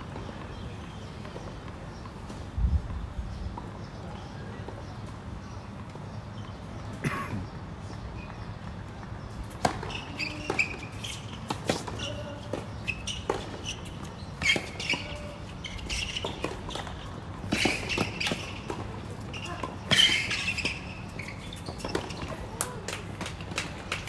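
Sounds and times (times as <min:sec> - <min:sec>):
shoes squeaking on court: 0:00.0 - 0:24.0
racket hitting tennis ball: 0:09.4 - 0:24.0.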